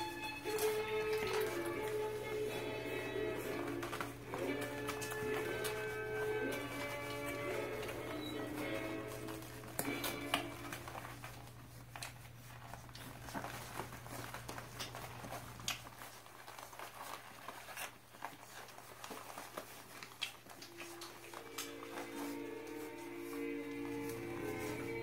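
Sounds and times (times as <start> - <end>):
pads crinkling and rustling: 0.0 - 25.0
small clicks and scuffs: 0.0 - 25.0.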